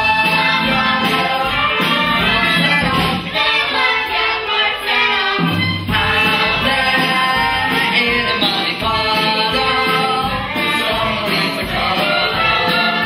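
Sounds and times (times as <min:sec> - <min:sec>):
band accompaniment: 0:00.0 - 0:13.0.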